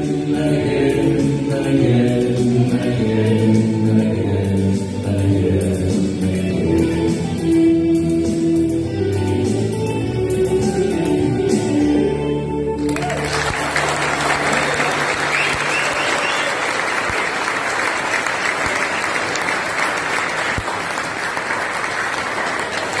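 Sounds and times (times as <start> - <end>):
music: 0.0 - 16.9
audience applause: 12.8 - 23.0.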